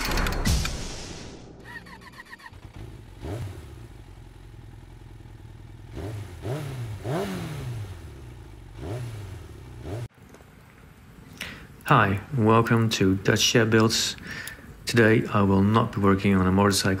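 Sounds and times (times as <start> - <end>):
motorcycle engine revving: 1.6 - 10.2.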